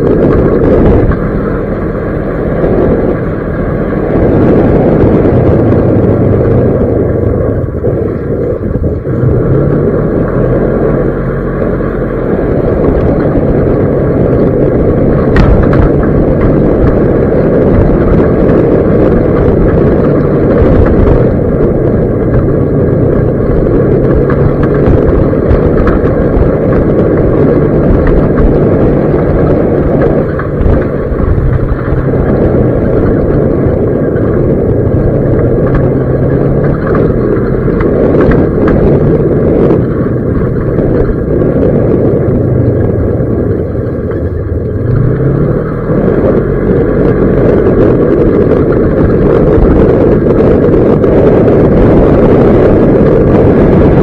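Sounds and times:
vehicle engine on dirt track: 0:00.0 - 0:54.0
wind buffeting microphone: 0:00.0 - 0:54.0.

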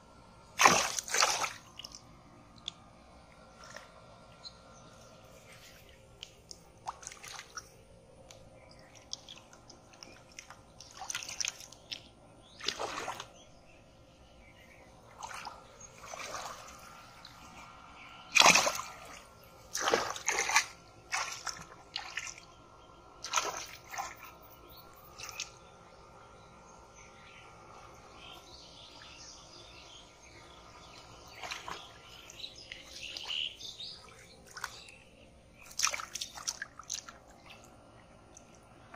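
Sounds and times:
water splashing: 0:00.6 - 0:04.2, 0:05.3 - 0:13.4, 0:15.0 - 0:17.7, 0:18.3 - 0:22.6, 0:23.2 - 0:25.7, 0:30.8 - 0:38.9.

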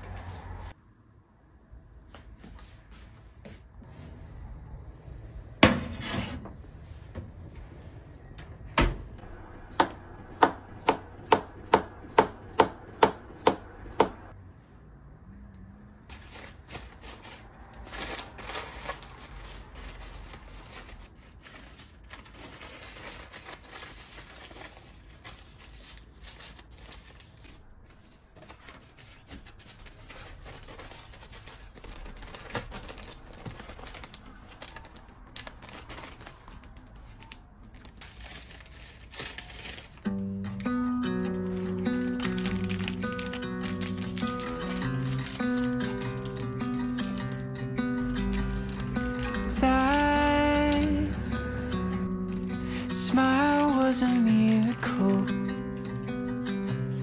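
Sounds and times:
paper towel rustling: 0:16.1 - 0:40.1, 0:41.3 - 0:57.0.

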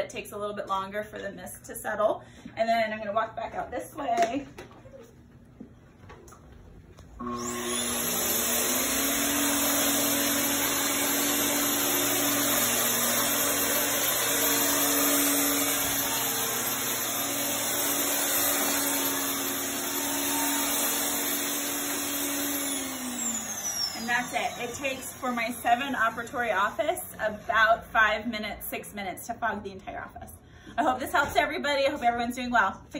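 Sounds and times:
electric fogger motor whine: 0:07.2 - 0:27.5.

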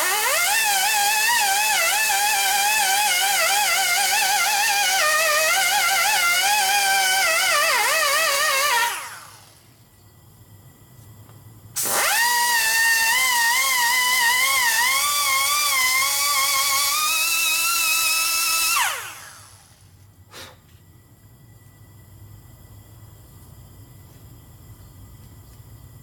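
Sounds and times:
air grinder whining on metal: 0:00.0 - 0:09.6, 0:11.8 - 0:19.8.

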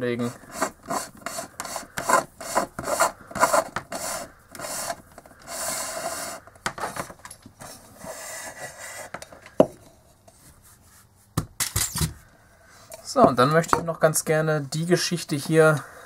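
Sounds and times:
plastic rubbing and scraping: 0:00.2 - 0:09.6.

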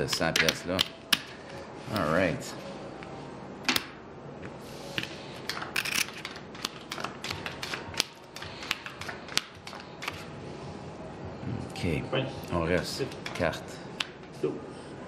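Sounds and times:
playing cards being dealt: 0:04.5 - 0:10.3
casino chips clicking: 0:05.5 - 0:09.9.

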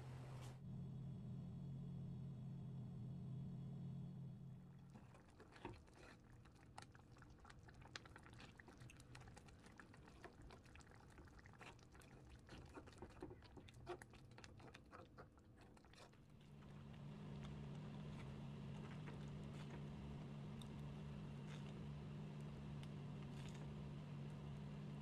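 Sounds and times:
sauce bubbling and popping: 0:05.3 - 0:16.3.

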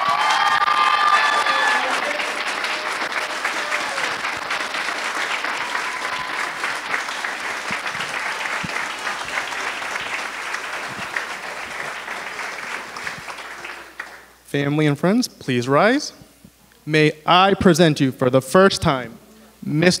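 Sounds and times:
guests applauding: 0:00.0 - 0:14.4.

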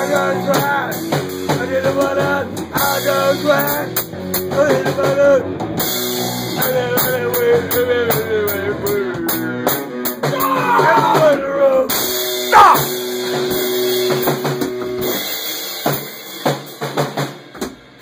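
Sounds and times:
drum kit with cymbals: 0:00.0 - 0:18.0
electric guitar: 0:00.0 - 0:18.0.

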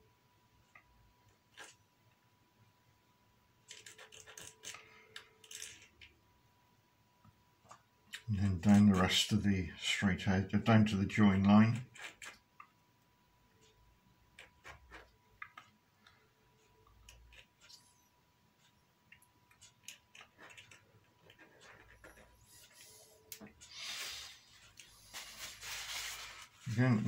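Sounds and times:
tissue rustling: 0:23.9 - 0:27.0.

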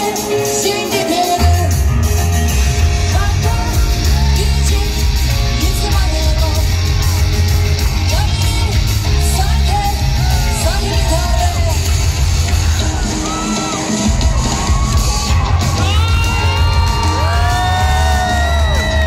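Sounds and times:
woman singing into a microphone: 0:00.0 - 0:01.9, 0:03.0 - 0:07.0, 0:08.0 - 0:12.0
heavy bass beat: 0:14.0 - 0:19.0.

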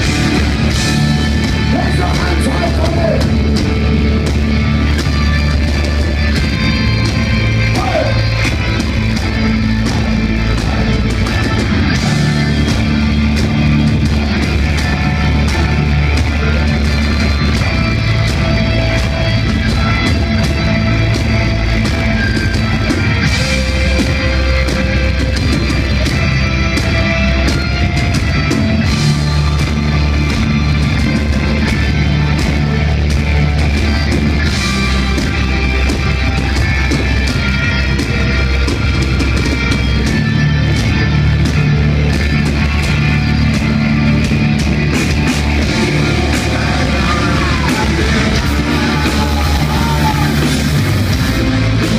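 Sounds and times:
heavy metal band playing live: 0:00.0 - 0:51.9.

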